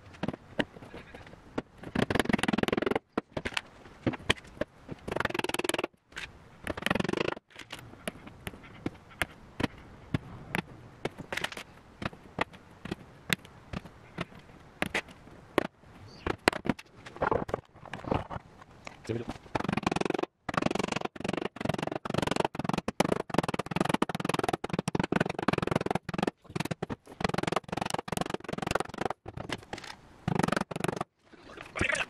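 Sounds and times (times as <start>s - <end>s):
hammer tapping nails: 19.5s - 29.2s.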